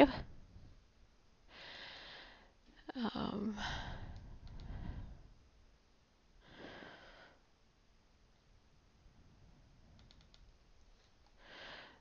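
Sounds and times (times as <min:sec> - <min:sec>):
soft breath: 0:01.5 - 0:02.7, 0:03.5 - 0:05.5, 0:06.4 - 0:07.5, 0:10.9 - 0:12.0
faint mouse clicks: 0:04.1 - 0:04.8, 0:09.9 - 0:11.4.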